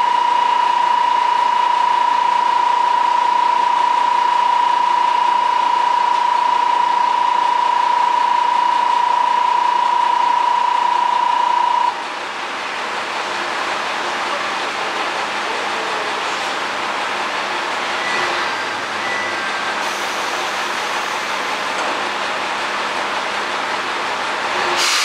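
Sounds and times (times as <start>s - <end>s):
station departure buzzer: 0.0s - 12.0s
diesel railcar engine running: 0.0s - 25.0s.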